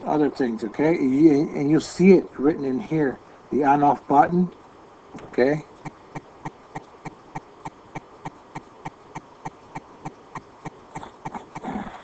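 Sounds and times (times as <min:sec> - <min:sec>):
faint background hiss: 0:00.0 - 0:12.0
steady ticking clicks: 0:04.5 - 0:12.0.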